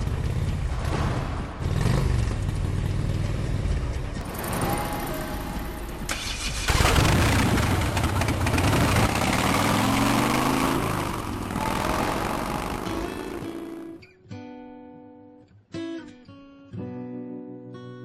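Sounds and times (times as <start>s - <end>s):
engine running and revving: 0.0s - 0.9s, 1.6s - 14.0s.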